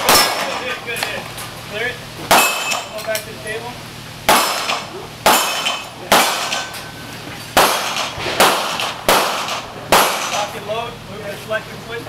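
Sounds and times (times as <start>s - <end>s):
handgun shots with echo: 4.3s - 6.8s, 7.6s - 10.5s.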